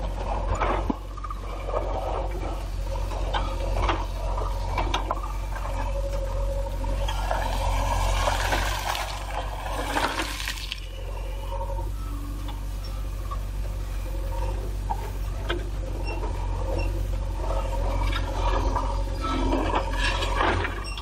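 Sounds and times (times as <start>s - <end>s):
diesel engine running: 0.0s - 21.0s
stones scraping and rattling: 6.9s - 11.2s.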